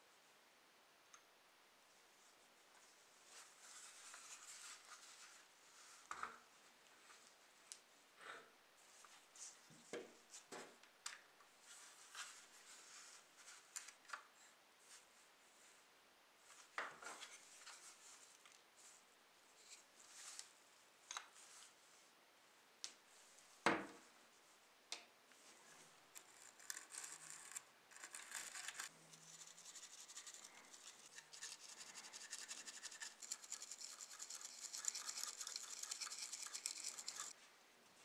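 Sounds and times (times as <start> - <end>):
brush scrubbing: 29.2 - 37.4.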